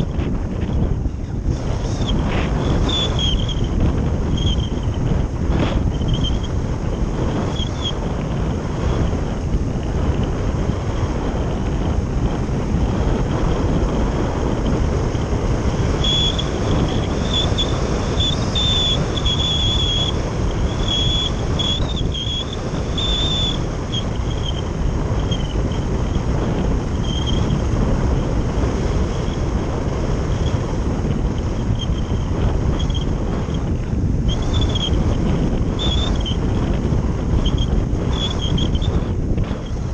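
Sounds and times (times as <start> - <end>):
wind roar over microphone: 0.0 - 39.9
faint high whistling tones: 1.8 - 5.0, 7.5 - 8.0, 16.0 - 24.6, 34.3 - 35.0, 35.8 - 36.4, 37.4 - 39.0.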